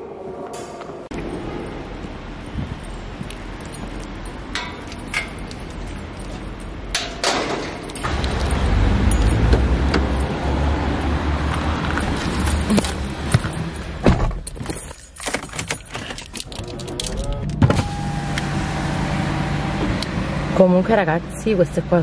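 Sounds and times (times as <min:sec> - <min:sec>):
keys jangling: 0:01.2 - 0:17.4
car door shutting: 0:17.4 - 0:18.6.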